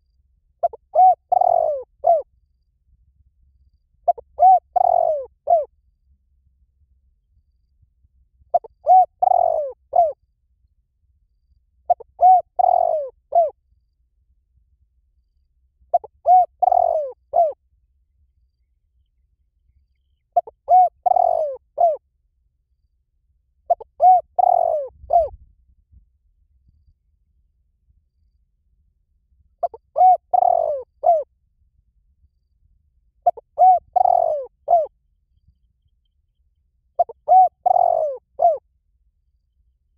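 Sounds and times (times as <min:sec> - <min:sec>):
dove cooing: 0:00.6 - 0:02.3, 0:04.0 - 0:05.7, 0:08.5 - 0:10.2, 0:11.9 - 0:13.6, 0:15.9 - 0:17.6, 0:20.4 - 0:22.0, 0:23.7 - 0:25.4, 0:29.6 - 0:31.3, 0:33.2 - 0:34.9, 0:37.0 - 0:38.6.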